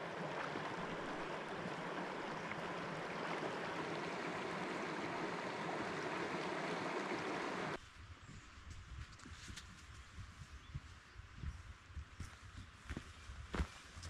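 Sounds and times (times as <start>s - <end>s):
stream water rushing: 0.0s - 7.8s.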